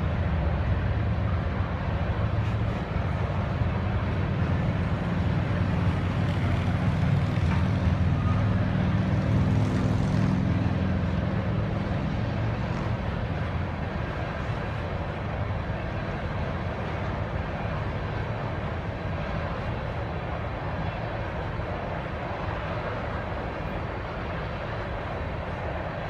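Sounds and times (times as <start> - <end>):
freight train rumbling past: 0.0 - 26.0.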